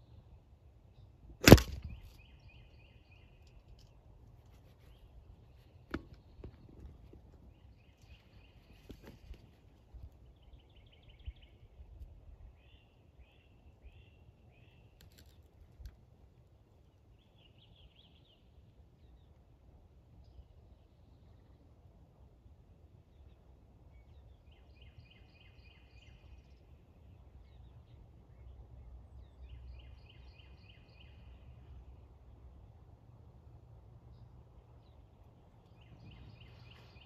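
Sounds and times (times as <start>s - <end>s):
sharp crack: 1.4s - 2.3s
small birds chirping and trilling: 34.1s - 37.0s.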